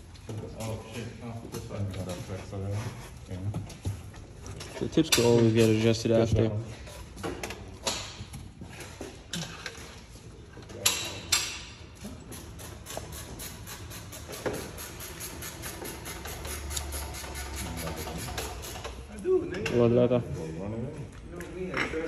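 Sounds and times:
metallic knocks and clanks of tools: 3.6 - 5.9, 7.1 - 10.0, 10.6 - 19.9.

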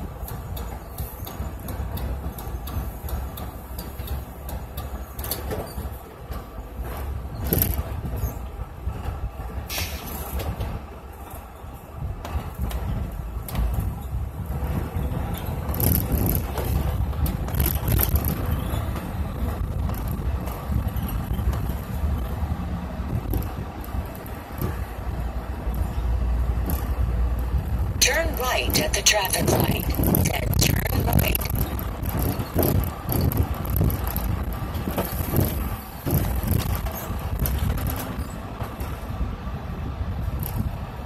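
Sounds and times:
bus engine and road noise: 0.0 - 41.0.

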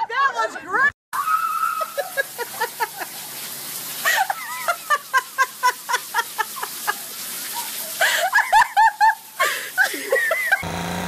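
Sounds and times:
person laughing high-pitched: 1.6 - 3.2, 4.1 - 7.2, 8.0 - 10.6.

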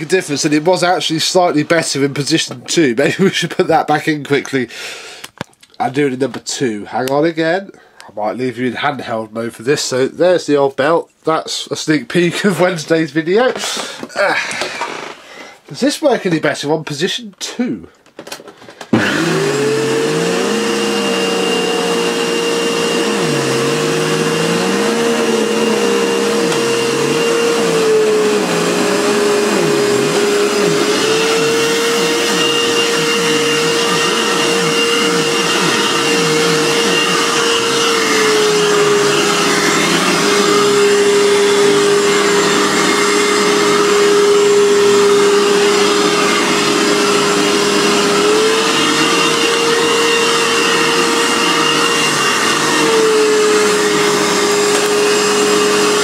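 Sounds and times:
vacuum cleaner on carpet: 18.9 - 56.0.

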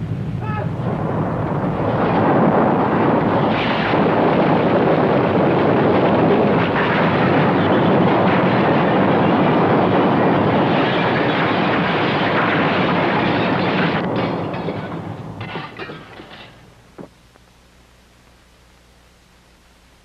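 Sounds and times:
earthquake rumble and falling debris: 0.8 - 16.7.

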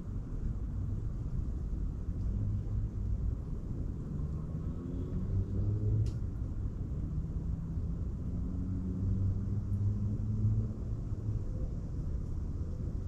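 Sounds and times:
faint sharp click: 6.0 - 6.2.

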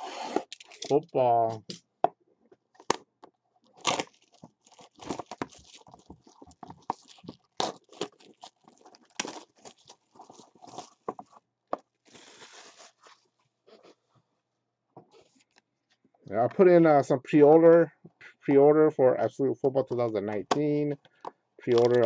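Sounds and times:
plastic wrap crinkling and tearing: 0.0 - 1.0, 3.6 - 11.3, 11.9 - 13.2, 21.7 - 22.0.

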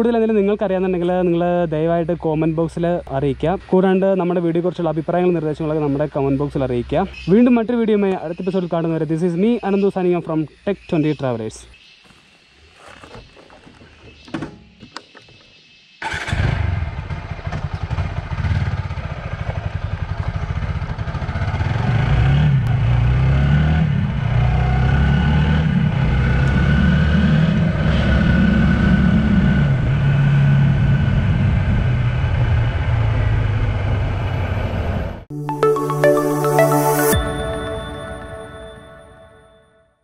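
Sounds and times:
motorcycle engine revving: 16.0 - 35.1.

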